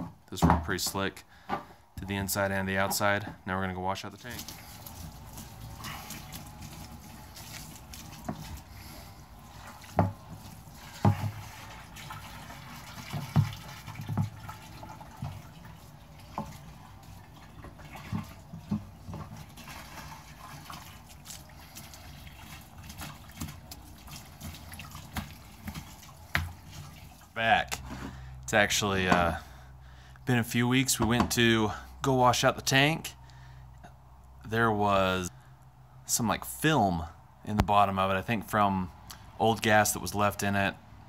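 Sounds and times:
hose spraying water into tank: 4.1s - 28.2s
water sloshing inside tank: 4.1s - 29.8s.

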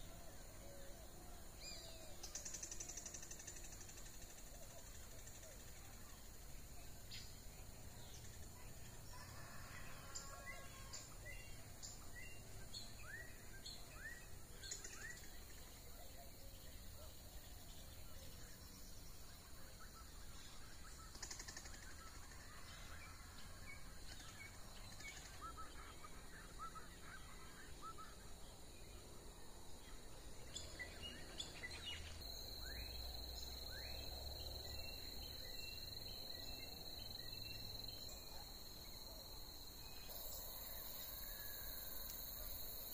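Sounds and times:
high insect drone: 29.9s - 42.9s.

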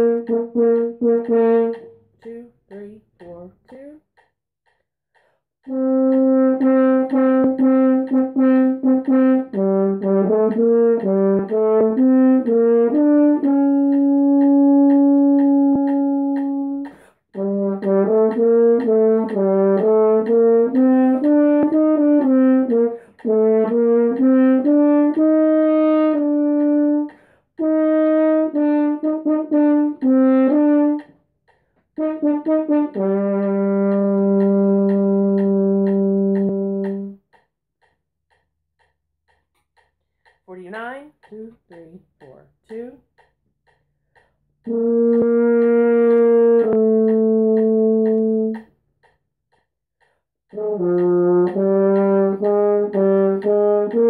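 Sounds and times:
french horn melody: 0.0s - 2.0s, 5.7s - 31.1s, 32.0s - 37.2s, 44.7s - 48.6s, 50.6s - 54.0s.

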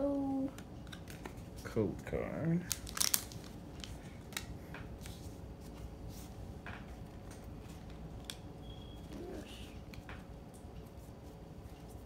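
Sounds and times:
low room hum: 0.0s - 12.0s
cards clicking and rustling: 0.8s - 1.5s, 2.6s - 5.2s.

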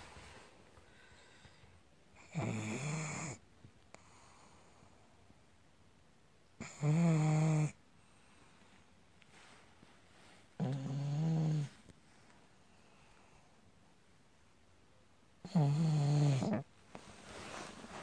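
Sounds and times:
dog snoring: 2.2s - 3.4s, 6.6s - 7.8s, 10.6s - 11.8s, 15.4s - 16.7s.

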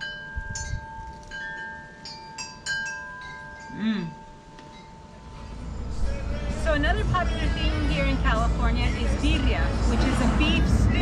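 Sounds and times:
wind chimes ringing: 0.0s - 5.8s.

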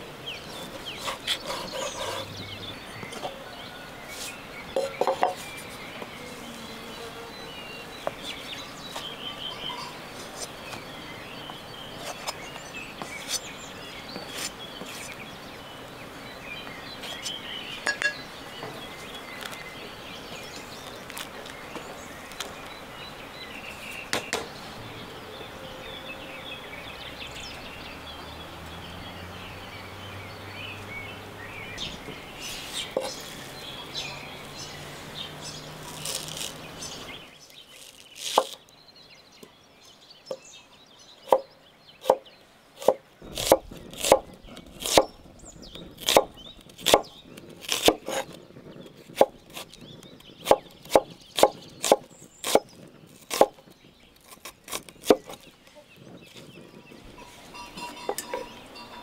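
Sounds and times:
knife chopping on wooden board: 42.0s - 42.2s, 42.8s - 45.1s.

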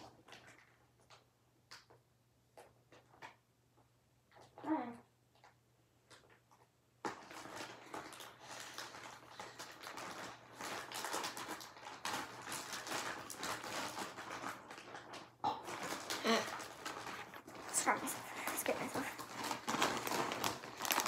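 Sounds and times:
packaging rustling and crinkling: 7.0s - 21.0s.

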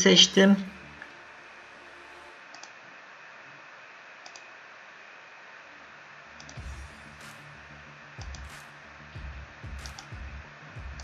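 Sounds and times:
computer mouse clicking: 2.5s - 2.8s, 4.2s - 4.5s, 6.4s - 6.6s, 8.2s - 8.5s, 9.8s - 10.1s.

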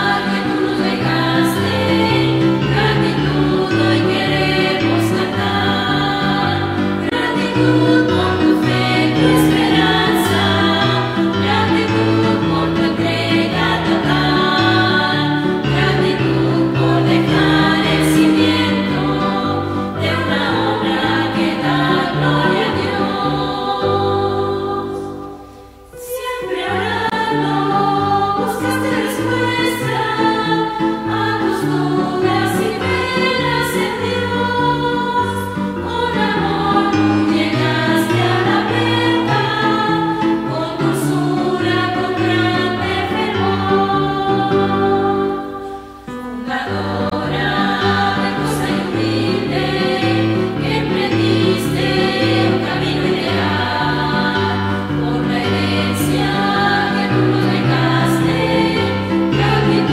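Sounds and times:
choir singing a hymn: 0.0s - 59.9s.

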